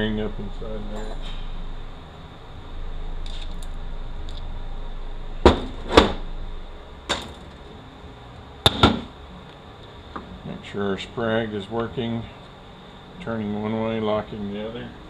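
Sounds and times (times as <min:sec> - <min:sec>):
metal parts clanking: 0:07.1 - 0:07.6.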